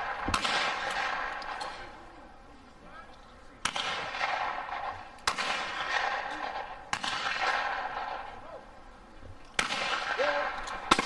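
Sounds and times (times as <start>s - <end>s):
shotgun shots with echo: 0.0s - 1.8s, 3.6s - 8.4s, 9.6s - 11.0s.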